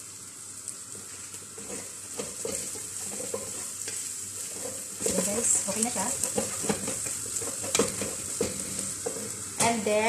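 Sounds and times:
onion and garlic sizzling in oil: 0.0s - 10.0s
utensil scraping a pan: 1.6s - 9.5s.

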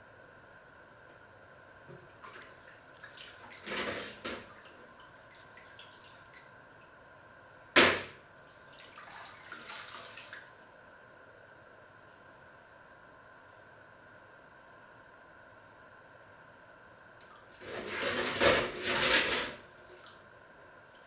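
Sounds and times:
sharp knock: 7.8s - 8.2s.

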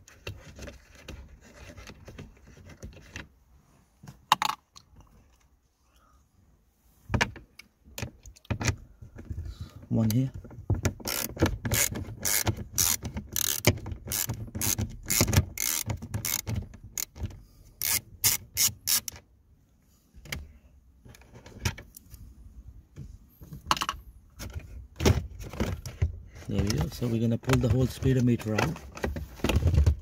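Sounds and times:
ratchet clicking: 11.0s - 17.2s, 17.8s - 19.2s.

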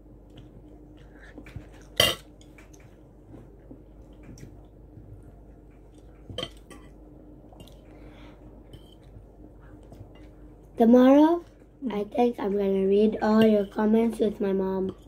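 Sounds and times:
cutlery clinking against plates: 1.8s - 2.8s, 6.4s - 7.0s.

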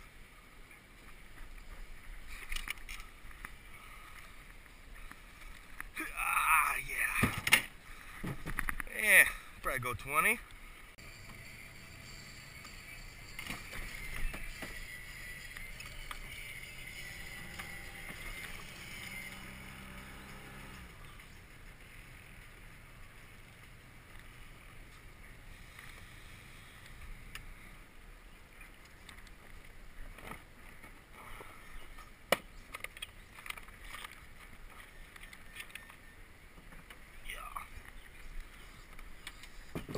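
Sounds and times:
low hum: 10.4s - 30.0s.

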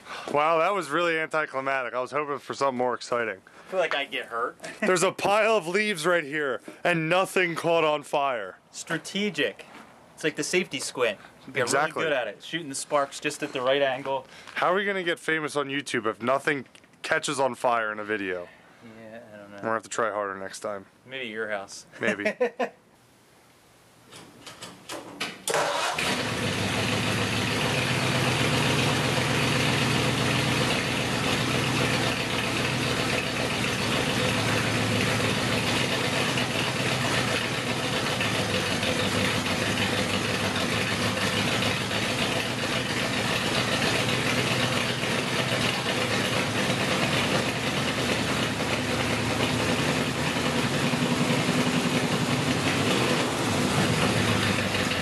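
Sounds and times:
engine clicks: 24.2s - 26.7s
car engine starting and idling: 25.4s - 55.0s.

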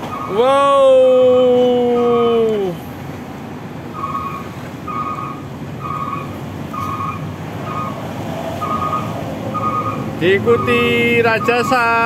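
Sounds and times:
wind and road noise: 0.0s - 12.0s
electronic beeps: 8.6s - 12.0s.

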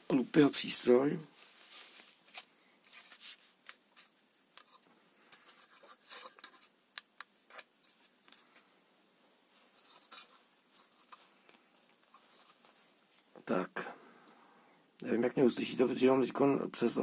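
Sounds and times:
small objects clicking and rustling: 2.2s - 8.7s.

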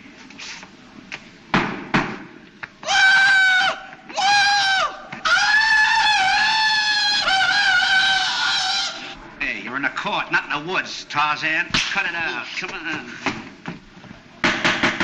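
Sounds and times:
sharp knocks: 1.5s - 2.3s, 14.4s - 15.0s
yodelling jungle yell: 2.8s - 9.2s.

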